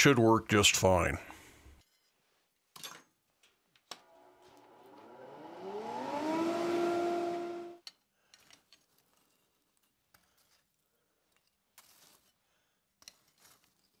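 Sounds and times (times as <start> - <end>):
electric motor whining: 4.0 - 7.8.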